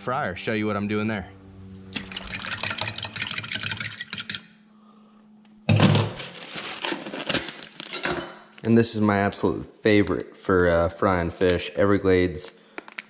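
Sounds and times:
low steady hum: 0:00.0 - 0:12.8
plastic bag rustling: 0:05.7 - 0:08.6.

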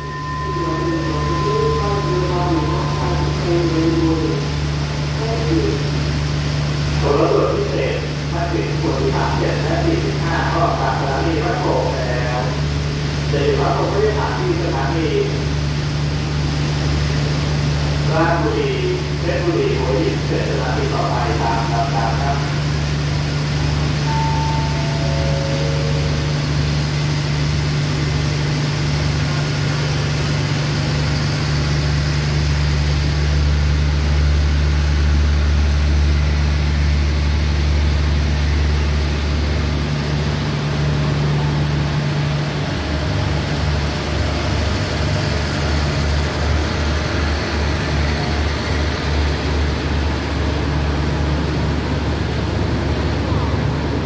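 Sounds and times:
station announcement chime: 0:00.0 - 0:15.6, 0:18.0 - 0:30.5, 0:44.4 - 0:49.9, 0:52.6 - 0:54.0
diesel engine droning: 0:00.0 - 0:54.0.

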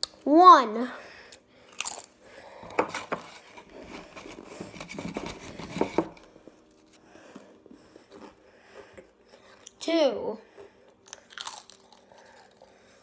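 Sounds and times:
crunching and chewing chips: 0:01.6 - 0:02.2, 0:10.6 - 0:13.0.

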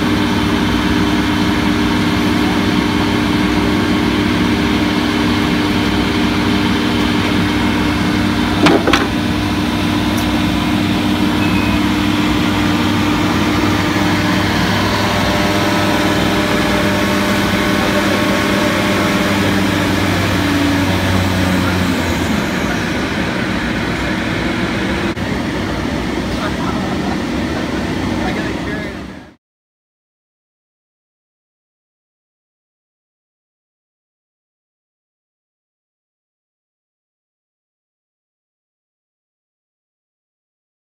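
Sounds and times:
woodworking machinery humming: 0:00.0 - 0:29.3.

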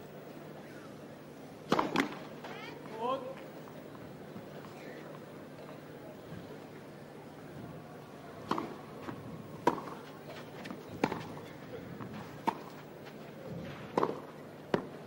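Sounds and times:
crowd murmur: 0:00.0 - 0:15.0
tennis ball bouncing: 0:01.7 - 0:02.2, 0:08.4 - 0:12.8, 0:13.9 - 0:14.9
racket hitting tennis ball: 0:01.7 - 0:02.3, 0:08.4 - 0:12.8, 0:13.8 - 0:14.9.

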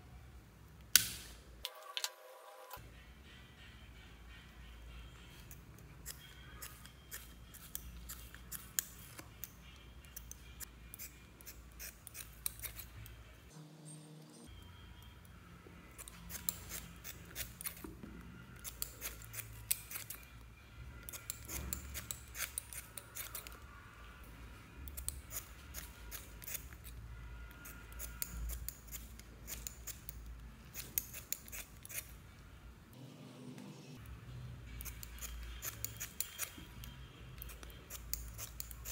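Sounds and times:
scissors snipping foam: 0:05.5 - 0:13.2, 0:15.9 - 0:17.9, 0:18.6 - 0:20.4, 0:21.0 - 0:23.6, 0:24.8 - 0:27.0, 0:27.6 - 0:32.2, 0:34.7 - 0:38.9.

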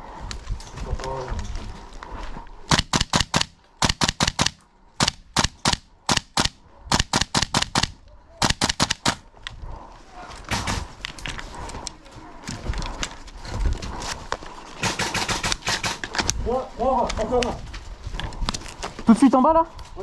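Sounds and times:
airsoft rifle shots: 0:02.7 - 0:09.2, 0:10.5 - 0:10.9, 0:14.8 - 0:16.0.

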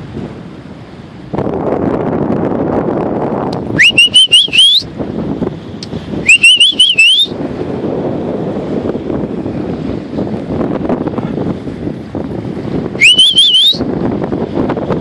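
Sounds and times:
wind noise on microphone: 0:00.0 - 0:15.0
person whistling loudly: 0:03.8 - 0:04.9, 0:06.3 - 0:07.3, 0:13.0 - 0:13.9.

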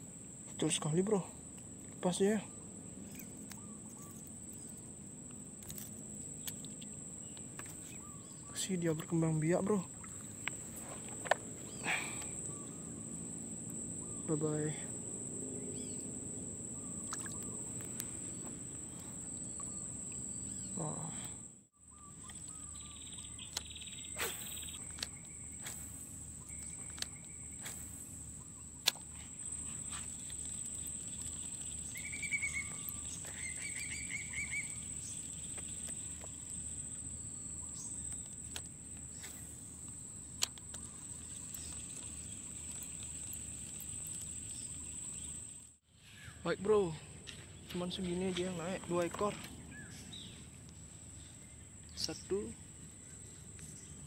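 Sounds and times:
high-pitched insect trill: 0:00.0 - 0:54.0
bird chirps: 0:02.0 - 0:04.8, 0:06.4 - 0:11.0, 0:13.9 - 0:14.9, 0:15.5 - 0:21.1, 0:21.8 - 0:54.0.

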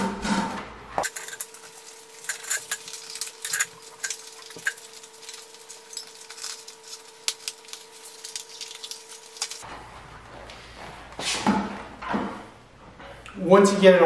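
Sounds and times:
faint steady hum: 0:00.8 - 0:11.0.

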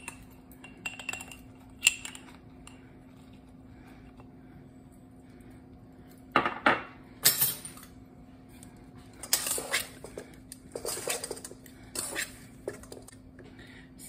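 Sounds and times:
utensil scraping mixing bowl: 0:09.2 - 0:13.1.

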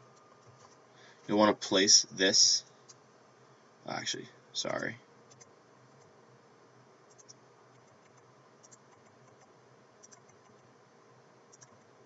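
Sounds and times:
faint room hiss: 0:00.0 - 0:12.0
computer mouse clicks: 0:05.3 - 0:06.1, 0:07.1 - 0:10.7, 0:11.5 - 0:11.9.

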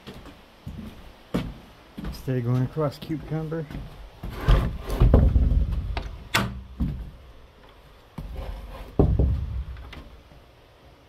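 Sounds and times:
heavy low thumps and knocks: 0:04.6 - 0:06.1, 0:09.0 - 0:09.9.

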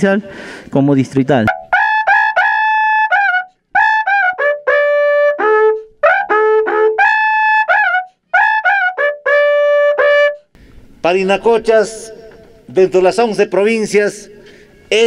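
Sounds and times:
horn trumpet notes: 0:01.5 - 0:10.4.

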